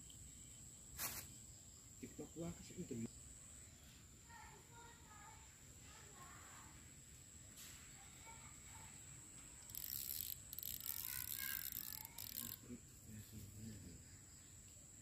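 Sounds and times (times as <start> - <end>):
fishing pole rustling and scraping: 1.0 - 1.3, 9.7 - 12.6.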